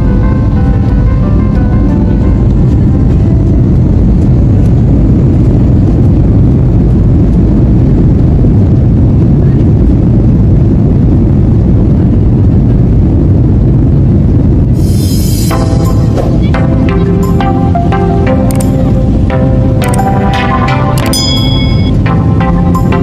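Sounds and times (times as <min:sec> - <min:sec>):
jet engines deep rumble in cabin: 0:00.0 - 0:23.0.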